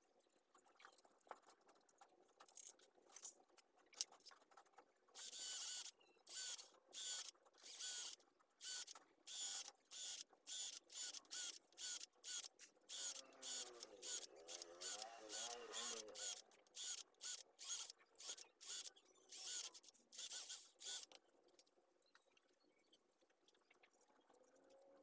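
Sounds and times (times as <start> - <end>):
cordless drill whining in bursts: 5.2 - 18.8.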